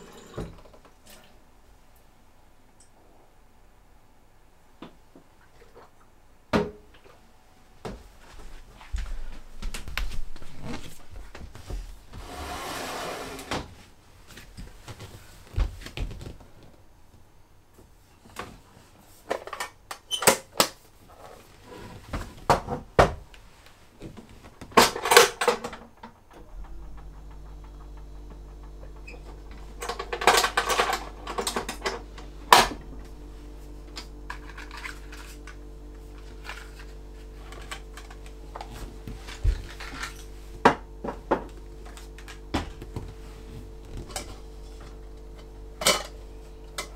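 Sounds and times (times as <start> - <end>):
steady low hum: 26.0 - 46.9.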